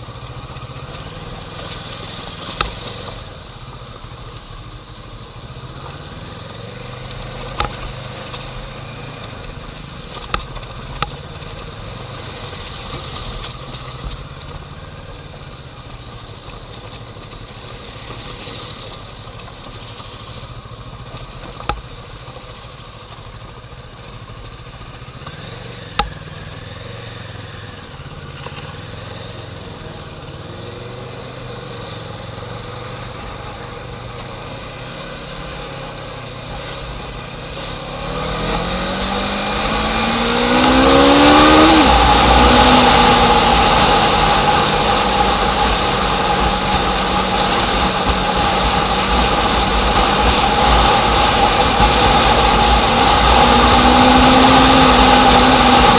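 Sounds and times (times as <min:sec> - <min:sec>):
vehicle engine revving: 0:25.2 - 0:55.9.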